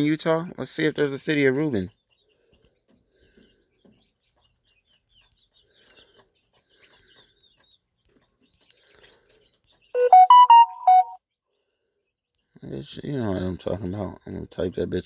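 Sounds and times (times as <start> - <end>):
smartphone notification chime: 10.0 - 11.2.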